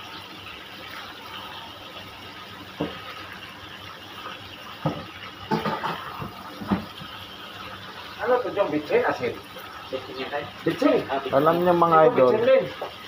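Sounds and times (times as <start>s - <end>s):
meat sizzling in a wok: 0.0s - 13.0s.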